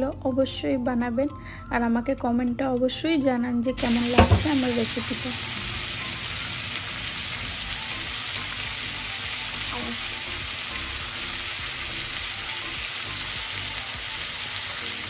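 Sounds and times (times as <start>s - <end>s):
chicken sizzling in a frying pan: 3.8s - 15.0s.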